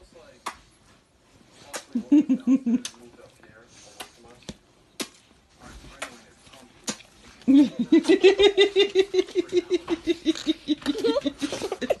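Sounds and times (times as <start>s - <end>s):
child laughing: 9.8s - 12.0s.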